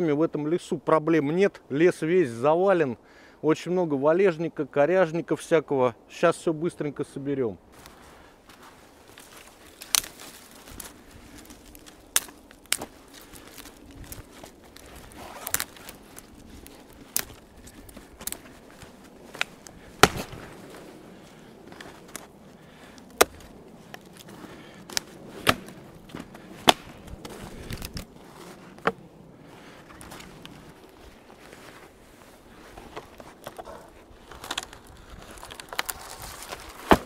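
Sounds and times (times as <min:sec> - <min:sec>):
frozen branches snapping: 0:07.8 - 0:29.0, 0:29.8 - 0:31.8, 0:32.7 - 0:37.0.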